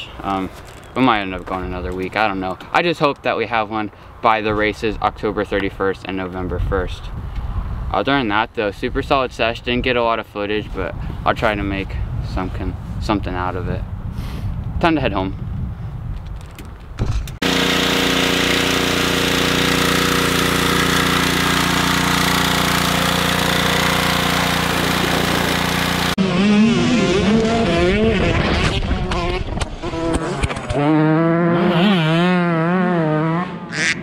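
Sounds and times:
pressure washer engine humming: 17.4s - 26.2s.

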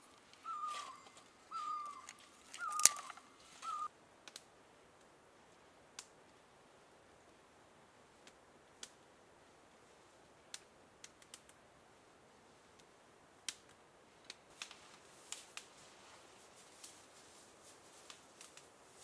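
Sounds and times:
twigs snapping and crackling: 0.2s - 4.5s, 10.5s - 11.6s, 13.5s - 15.7s, 18.0s - 18.7s.

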